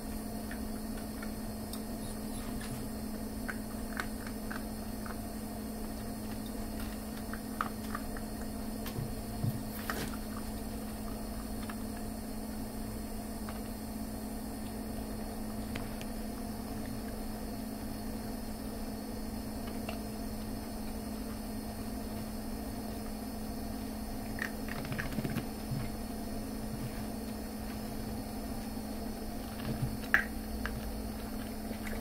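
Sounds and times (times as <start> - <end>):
electrical hum: 0.0 - 32.0
puppies eating dry kibble: 0.1 - 13.8, 24.2 - 26.0, 29.2 - 32.0.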